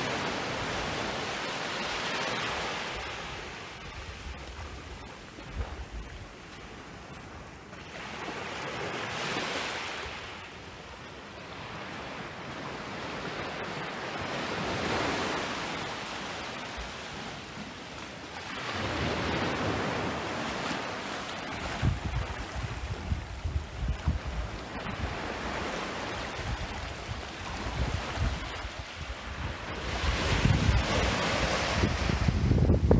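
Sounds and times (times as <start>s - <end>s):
waves washing on beach: 0.0s - 32.9s
wind buffeting microphone: 21.4s - 32.9s.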